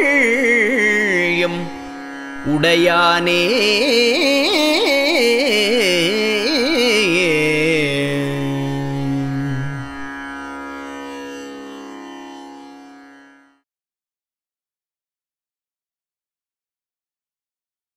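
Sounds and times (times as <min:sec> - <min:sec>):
ornamented devotional melody: 0:00.0 - 0:13.5.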